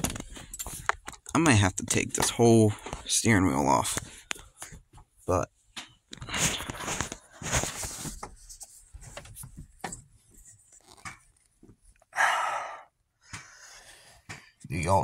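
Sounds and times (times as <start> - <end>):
breathy burst: 12.1 - 14.2.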